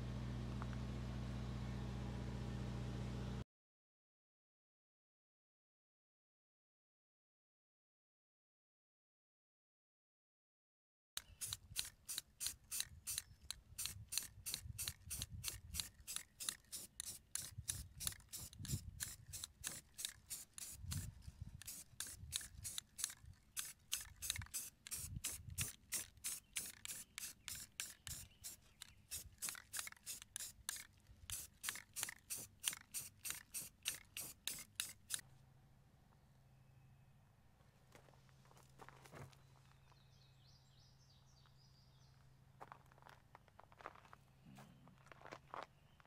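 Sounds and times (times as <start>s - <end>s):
hand tool filing strokes: 11.2s - 35.2s.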